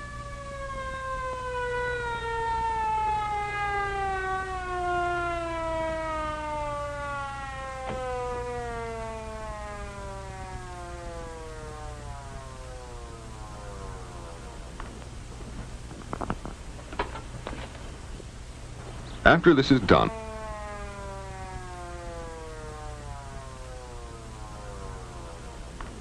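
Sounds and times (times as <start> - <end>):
ambulance siren winding down: 0.0 - 15.0, 19.2 - 26.0.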